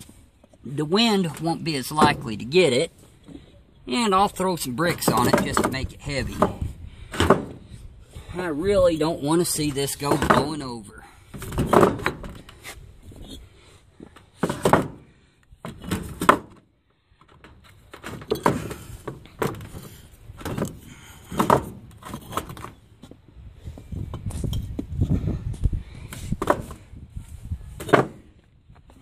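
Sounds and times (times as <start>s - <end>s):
clay bricks knocking on wood: 5.0s - 7.6s.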